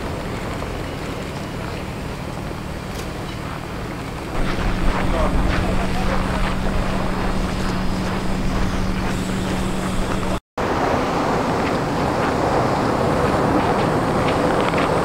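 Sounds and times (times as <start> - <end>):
tram rolling on tracks: 0.0 - 15.0
wind on microphone: 3.6 - 15.0
low hum: 4.3 - 10.4.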